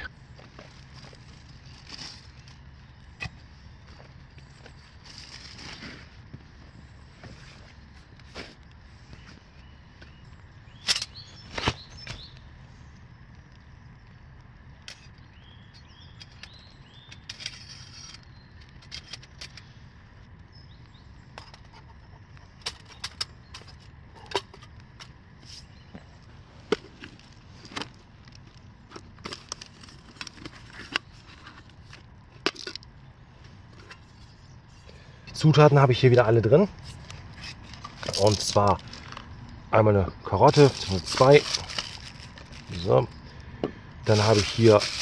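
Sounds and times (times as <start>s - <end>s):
leaves rustling: 36.7s - 39.5s, 40.4s - 43.3s, 44.0s - 45.0s.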